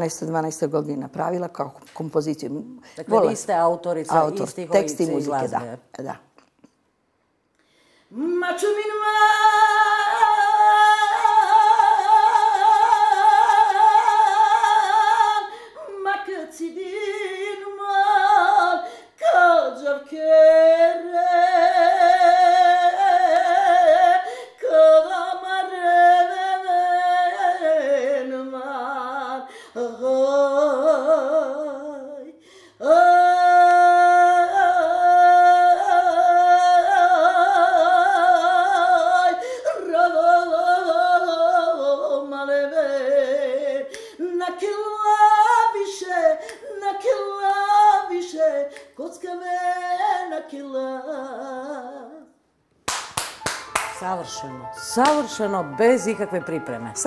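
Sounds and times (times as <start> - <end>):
woman singing a cappella: 0.0 - 6.2, 8.1 - 52.4
singer breathing: 7.6 - 8.2, 18.8 - 19.2, 24.2 - 24.6, 32.4 - 32.8, 43.9 - 44.2.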